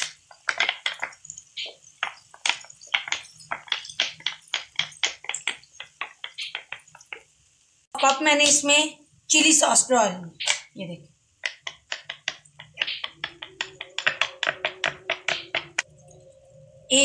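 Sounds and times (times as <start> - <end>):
sauce sizzling in hot pan: 0.0 - 7.9.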